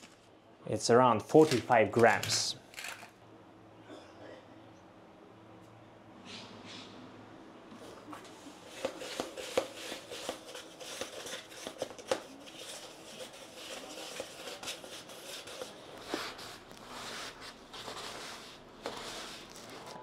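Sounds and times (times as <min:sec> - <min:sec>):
stick scraping wet grit: 0:12.4 - 0:20.0.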